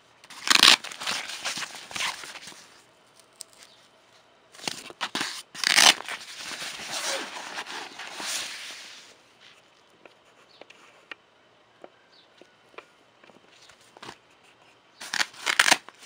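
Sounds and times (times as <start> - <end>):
fabric bag rustling and scraping: 5.6 - 9.1.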